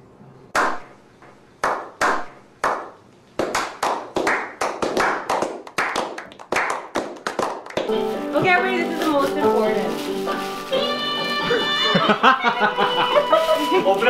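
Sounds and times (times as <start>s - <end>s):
men slow clapping: 1.6s - 7.9s.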